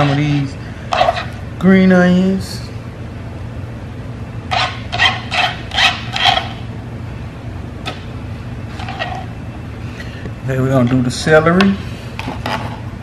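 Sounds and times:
scraping on plastic cutting board: 0.0 - 1.4, 4.5 - 6.6, 8.7 - 9.3, 12.2 - 12.8.

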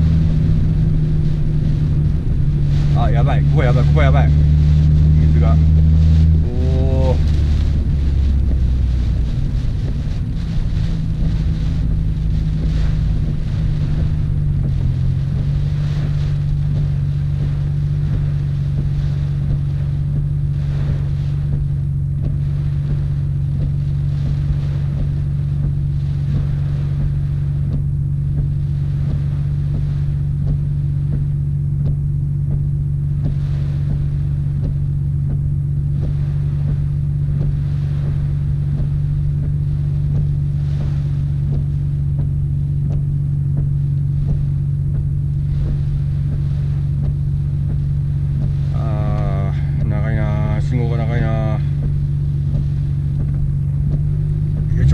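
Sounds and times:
car engine low drone: 0.0 - 54.9
heavy rain on glass: 0.0 - 54.9
windscreen wipers sweeping: 0.0 - 54.9.

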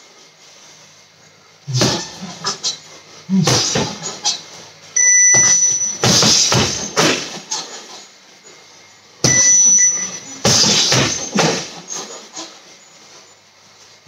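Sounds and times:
short electronic beep: 5.0 - 6.0, 9.2 - 10.4.

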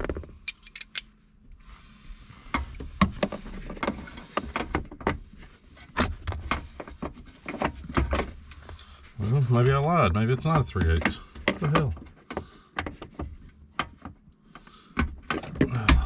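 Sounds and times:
metal clicks of ratchet and socket: 0.5 - 1.1.

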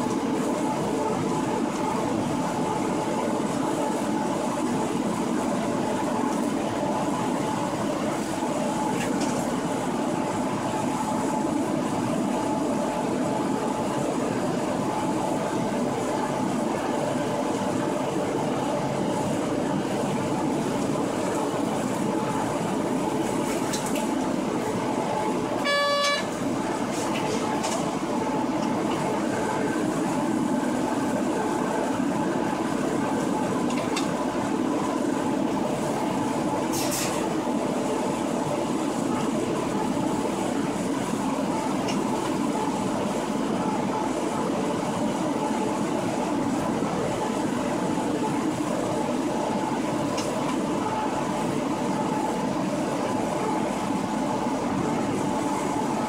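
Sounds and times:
brief high tone: 25.6 - 26.4.

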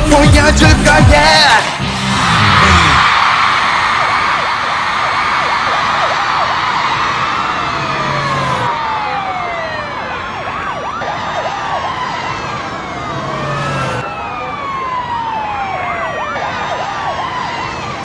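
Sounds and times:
crowd screaming and cheering: 1.2 - 18.0
siren-like falling sweep: 2.1 - 18.0.

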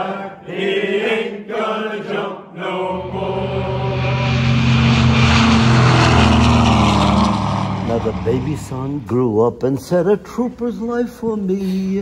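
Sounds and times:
group of people singing: 0.0 - 4.7
propeller plane engines droning: 2.9 - 9.6.

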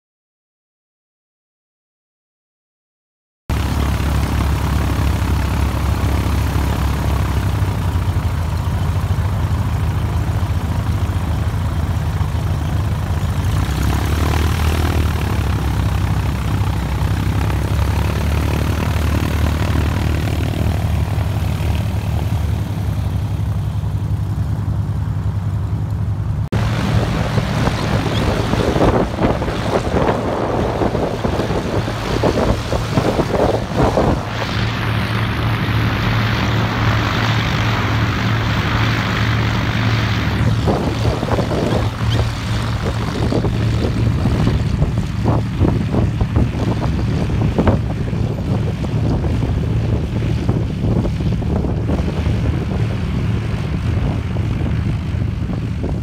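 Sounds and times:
small plane engine and propeller: 3.5 - 56.0
wind on microphone: 26.5 - 56.0.

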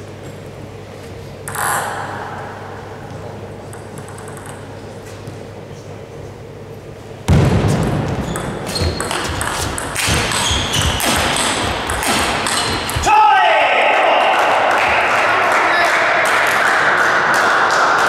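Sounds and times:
table tennis ball clicks: 3.7 - 4.7.

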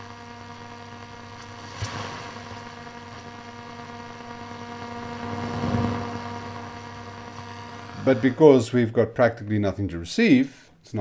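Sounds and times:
radio hum and static: 0.0 - 9.3
radio click: 5.9 - 8.4.

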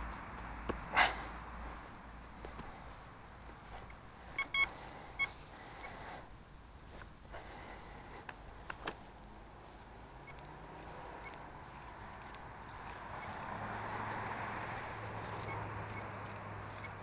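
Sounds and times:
distant traffic hum: 0.0 - 17.0
metal detector high beeps: 4.3 - 5.4
sharp clicks: 8.2 - 9.0.

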